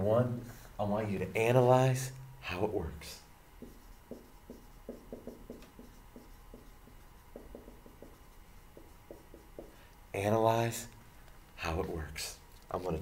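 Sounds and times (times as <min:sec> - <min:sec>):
marker squeaking on whiteboard: 0:03.6 - 0:09.8.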